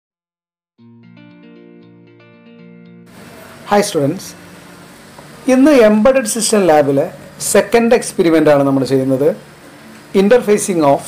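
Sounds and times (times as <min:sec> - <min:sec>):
melodic intro music: 0:00.8 - 0:06.0.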